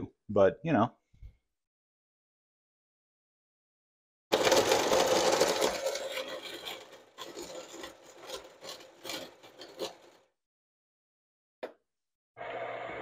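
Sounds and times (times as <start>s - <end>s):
coffee grinder grinding beans: 4.3s - 10.2s.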